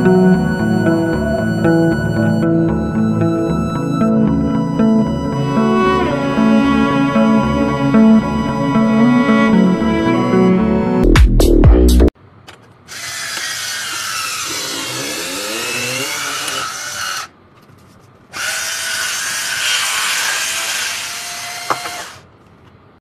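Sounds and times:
electric wine openers whirring: 12.9s - 17.3s, 18.4s - 22.2s.

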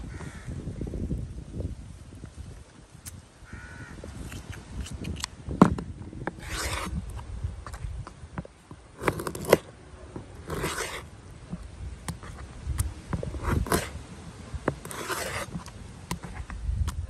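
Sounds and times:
knife scraping cutting board: 6.3s - 7.0s, 9.0s - 9.7s, 10.4s - 11.1s, 13.2s - 14.0s, 14.7s - 16.4s.

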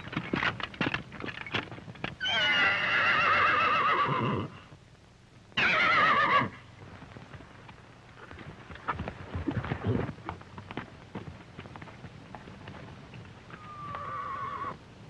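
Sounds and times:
horse whinnying: 2.2s - 4.6s, 5.6s - 6.6s, 13.5s - 14.8s.

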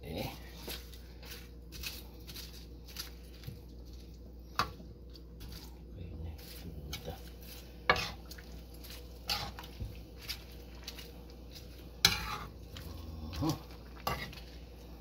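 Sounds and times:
metal spoon scraping a frying pan: 6.9s - 12.6s, 14.0s - 14.4s.

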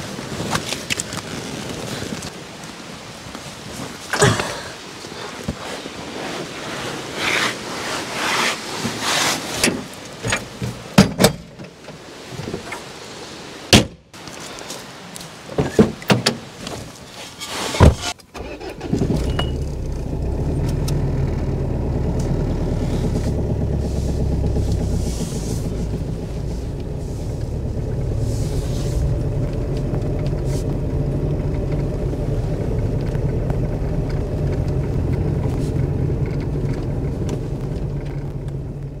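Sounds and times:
car engine idling: 18.4s - 39.0s.

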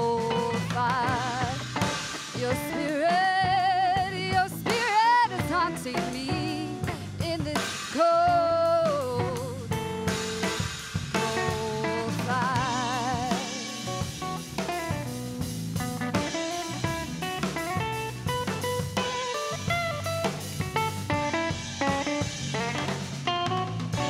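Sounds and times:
woman singing: 0.0s - 9.8s, 11.2s - 13.9s
rock band playing: 0.0s - 24.0s.

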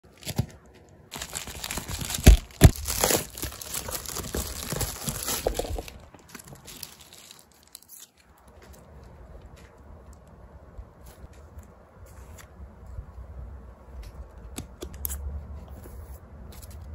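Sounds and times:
plastic packaging crinkling: 0.1s - 8.6s.

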